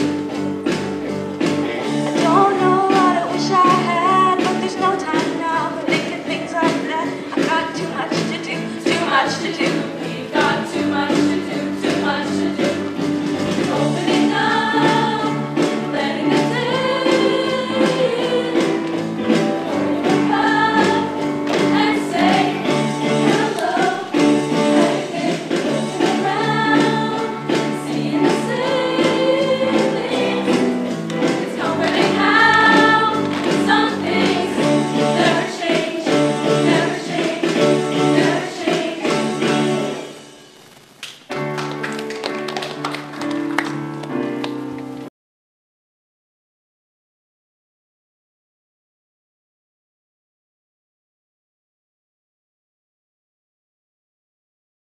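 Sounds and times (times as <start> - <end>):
girls' choir singing in harmony: 2.2 - 40.2.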